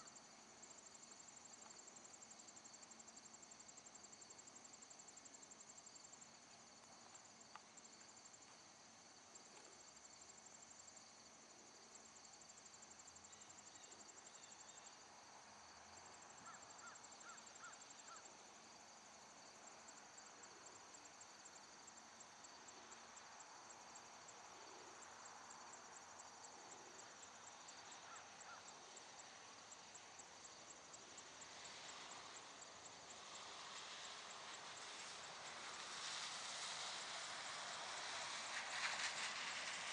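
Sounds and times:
insect trills: 0.0 - 39.9.

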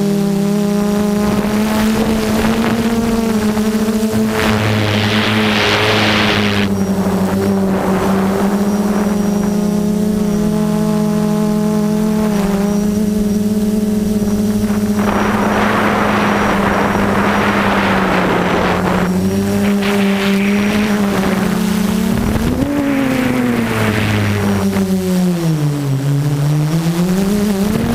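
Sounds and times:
quadcopter motors whining: 0.0 - 27.9
loud rushing noise: 1.2 - 8.6, 14.5 - 25.0.

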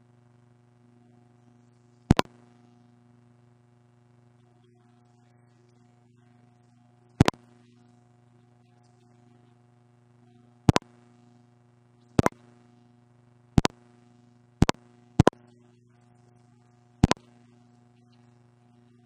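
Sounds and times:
low electrical hum: 0.0 - 19.0
sharp double clicks: 10.7 - 10.9, 12.2 - 12.4, 17.0 - 17.2.

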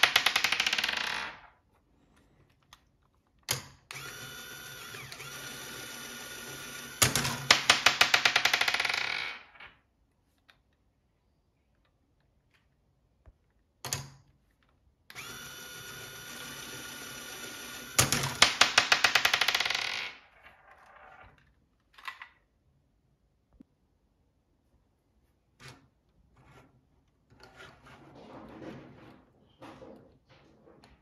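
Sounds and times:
small electric motor humming: 15.1 - 18.0
faint clicks and scrapes: 25.4 - 31.0.

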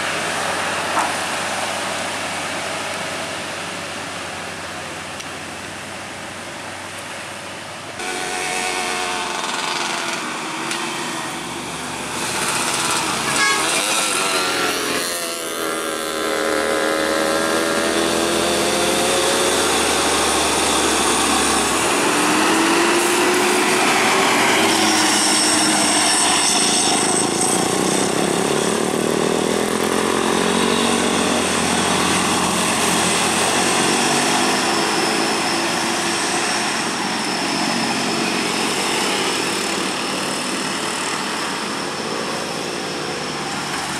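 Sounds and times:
diesel engine climbing: 0.0 - 43.9
truck air horn: 8.0 - 11.2, 12.6 - 15.6.

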